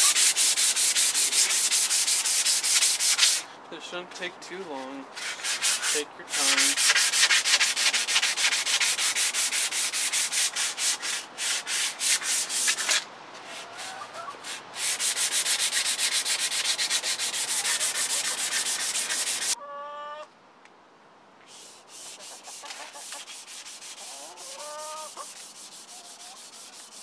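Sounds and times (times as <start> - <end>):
sanding block scrubbing steel: 0.0 - 3.4, 4.7 - 13.0, 13.8 - 19.6, 21.5 - 27.0.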